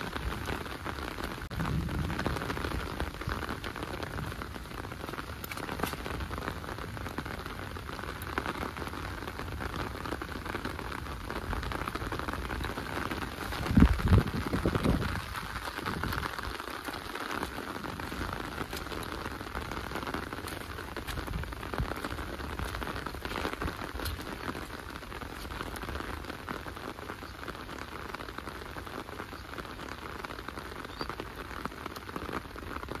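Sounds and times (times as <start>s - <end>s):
raindrops ticking: 0.0s - 33.0s
steady rain falling: 0.0s - 33.0s.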